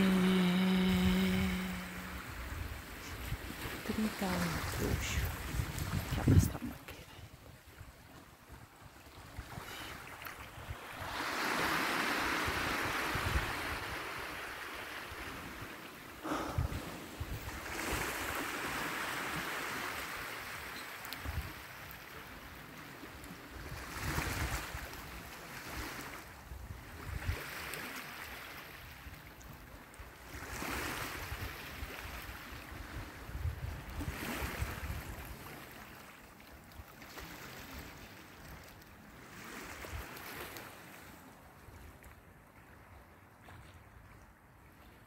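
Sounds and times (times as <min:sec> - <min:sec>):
waves on pebble shore: 0:00.0 - 0:41.6
wind on microphone: 0:04.3 - 0:07.8, 0:12.1 - 0:14.3, 0:30.9 - 0:35.5.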